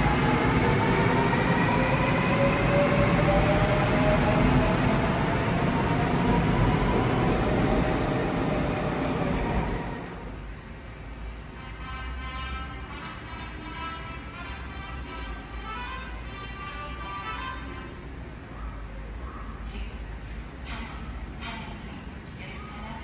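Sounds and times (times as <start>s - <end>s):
wheels rumbling on rail: 0.0s - 11.6s.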